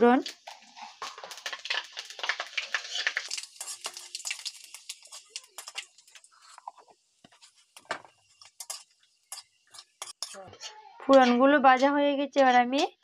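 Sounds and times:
spices sizzling and popping in oil: 0.0 - 13.0
metal spatula stirring in wok: 0.2 - 13.0.

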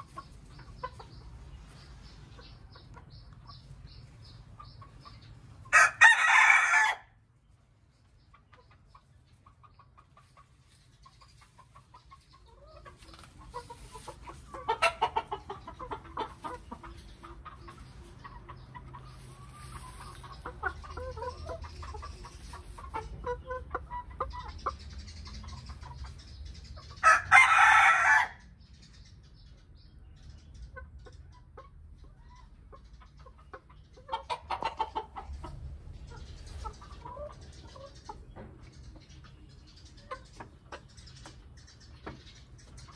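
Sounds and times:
chickens clucking: 0.0 - 42.9
loud chicken call: 5.7 - 7.2, 27.0 - 28.4.

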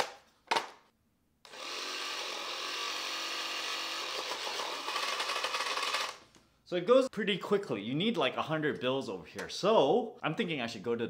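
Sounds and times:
toy money gun motor whirring: 1.5 - 6.2.

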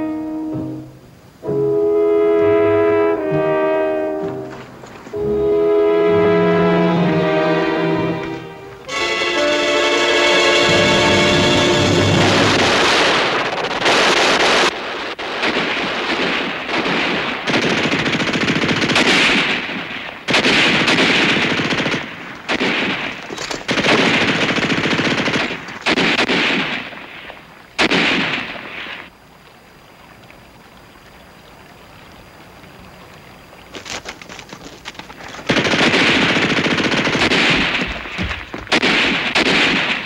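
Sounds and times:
machine-gun fire: 10.7 - 27.1, 27.8 - 28.6, 35.5 - 40.0.

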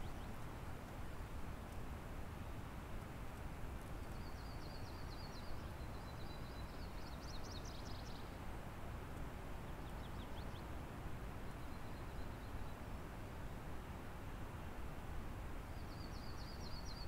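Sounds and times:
songbird singing trills: 15.8 - 17.0.

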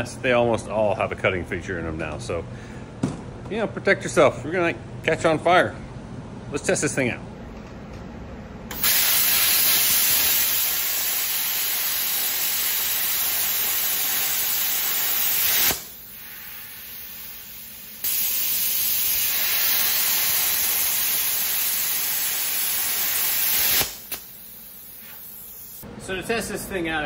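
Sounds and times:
plasma cutter hissing: 8.7 - 25.8.

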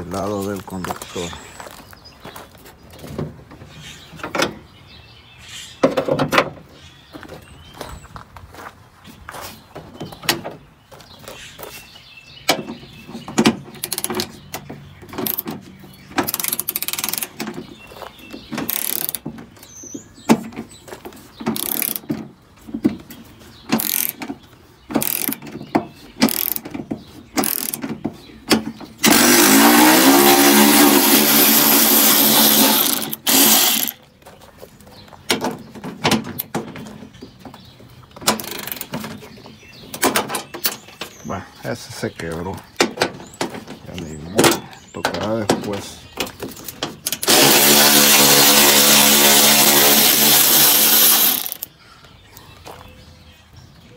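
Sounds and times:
tools and metal parts clanking: 12.5 - 29.2, 38.2 - 41.2
electric ratchet whirring: 15.2 - 15.4, 16.2 - 17.4, 18.6 - 19.2, 21.6 - 22.1, 23.8 - 24.2, 25.0 - 25.4, 26.2 - 26.6, 27.4 - 27.8, 29.0 - 34.0, 38.4 - 38.9, 47.0 - 51.7.

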